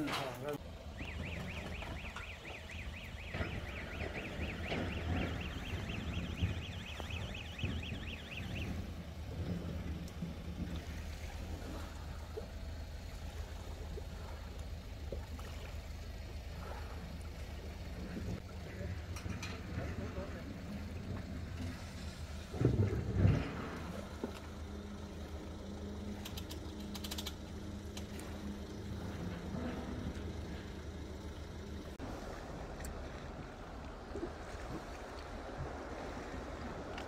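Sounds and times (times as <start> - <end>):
suv engine running at low revs: 0.0 - 37.0
fast high warbling tone: 0.9 - 8.9.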